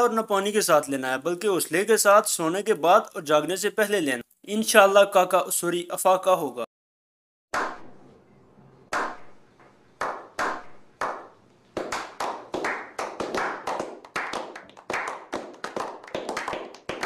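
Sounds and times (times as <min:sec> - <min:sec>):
men clapping hands: 0:10.0 - 0:17.0.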